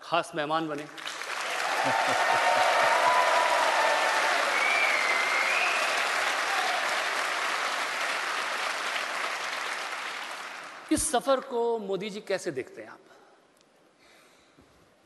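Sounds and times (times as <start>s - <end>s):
large audience applauding: 0.8s - 10.9s.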